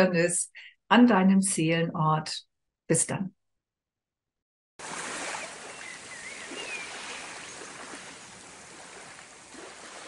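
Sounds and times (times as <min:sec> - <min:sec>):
rushing water: 0:04.8 - 0:10.0.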